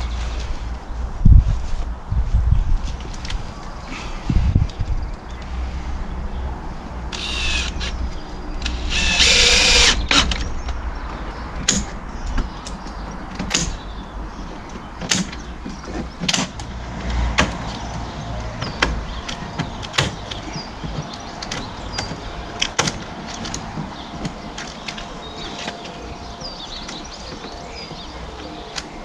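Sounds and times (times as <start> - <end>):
cordless drill driving into wood: 8.7 - 10.4
sharp clicks and knocks: 11.6 - 13.8, 14.6 - 26.0.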